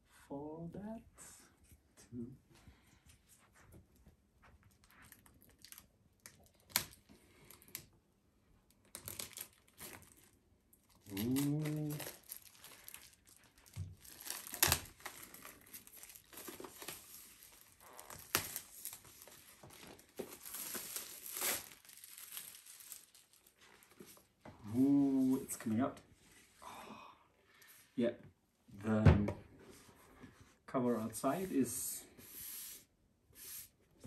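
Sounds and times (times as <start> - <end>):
plastic packaging crinkling and tearing: 4.8 - 7.9, 8.7 - 24.3.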